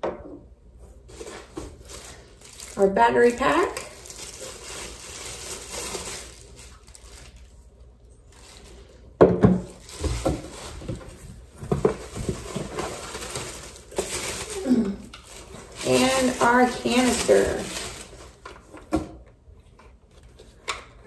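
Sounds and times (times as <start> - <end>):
plastic bags crinkling: 1.1 - 18.8
cardboard box rustling: 9.7 - 14.6.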